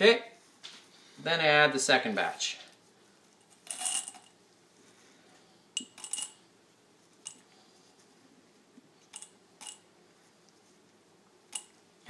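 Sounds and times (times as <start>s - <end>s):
pellets clinking in glass jar: 3.5s - 4.4s, 5.8s - 6.4s, 9.2s - 9.8s.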